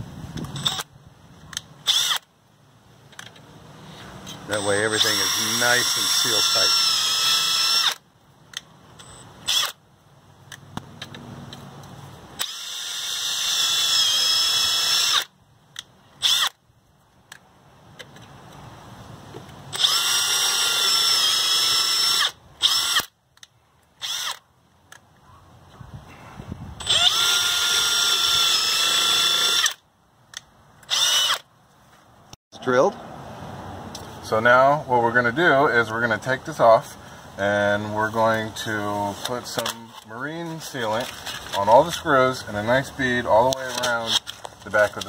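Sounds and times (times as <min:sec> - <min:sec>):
cordless drill whining: 0:01.8 - 0:02.3, 0:04.3 - 0:08.0, 0:09.0 - 0:09.8, 0:12.4 - 0:15.3, 0:16.2 - 0:16.6, 0:19.7 - 0:23.1, 0:24.0 - 0:24.4, 0:26.8 - 0:29.8, 0:30.8 - 0:31.5.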